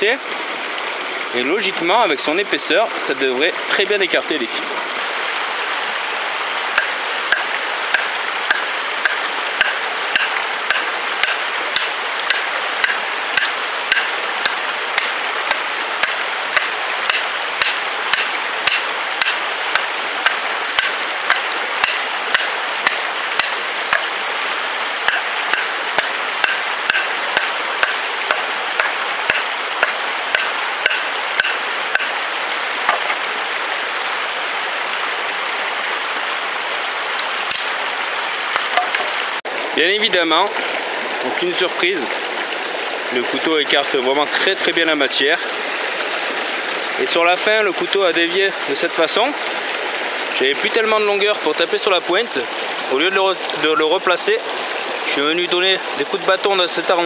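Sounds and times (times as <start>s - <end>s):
mountain stream running: 0.0s - 57.0s
log splitting: 6.8s - 24.2s, 25.0s - 32.2s, 37.2s - 37.8s
wooden baton knocking on knife: 16.0s - 24.1s, 25.1s - 32.1s.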